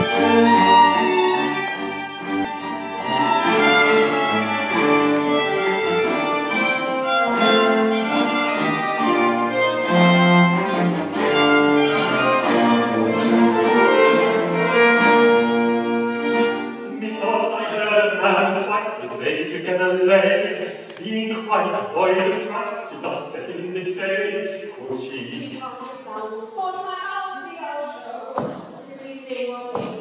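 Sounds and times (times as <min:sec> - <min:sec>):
cello bass line: 0:00.0 - 0:18.5
violin melody: 0:00.0 - 0:24.7.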